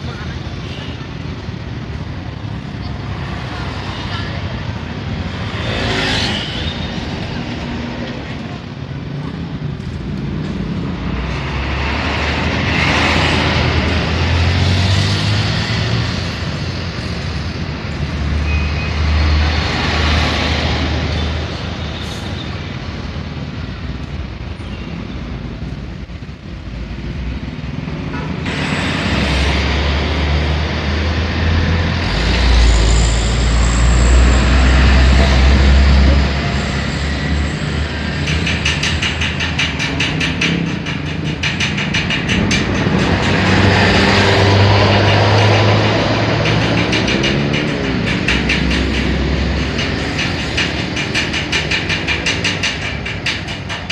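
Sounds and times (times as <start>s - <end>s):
trucks driving by: 0.0s - 53.9s.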